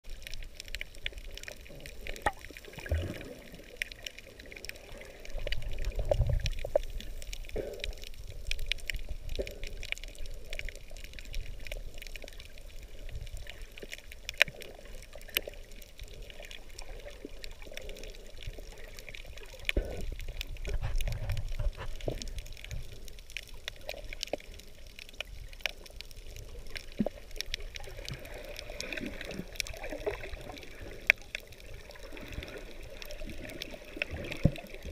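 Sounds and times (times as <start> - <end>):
faint clicks and crackles: 0.0 - 34.9
underwater water bubbling: 0.0 - 34.9.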